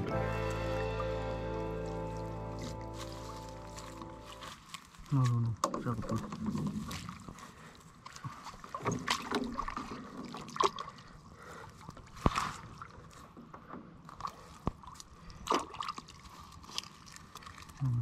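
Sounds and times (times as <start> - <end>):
wet weed rustling: 0.0 - 8.7, 14.4 - 18.0
water trickling and dripping: 0.2 - 5.1, 14.3 - 18.0.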